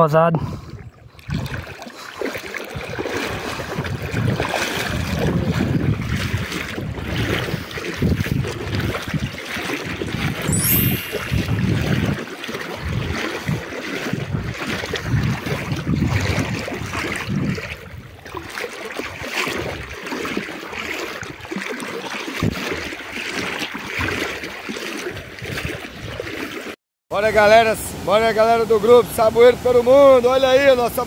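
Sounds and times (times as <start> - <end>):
rushing floodwater: 1.1 - 10.5, 11.4 - 31.0
wind buffeting microphone: 2.7 - 10.5, 11.2 - 18.4.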